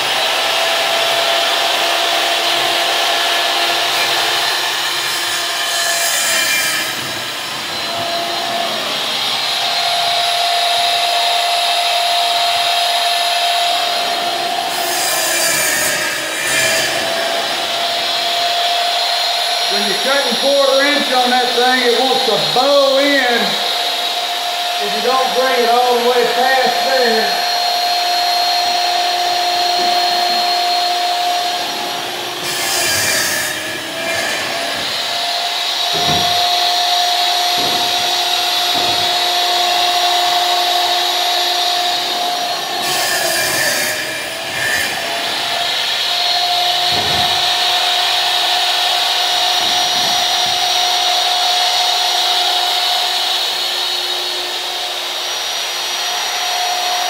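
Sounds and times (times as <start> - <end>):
panel saw motor whining: 0.0 - 57.0
saw blade cutting panel: 0.0 - 57.0
dull thumps of panels: 35.8 - 39.9, 46.8 - 51.0.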